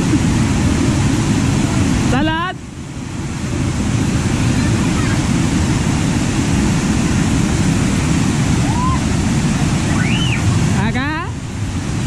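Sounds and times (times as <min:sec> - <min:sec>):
waterfall pouring and splashing: 0:00.0 - 0:12.0.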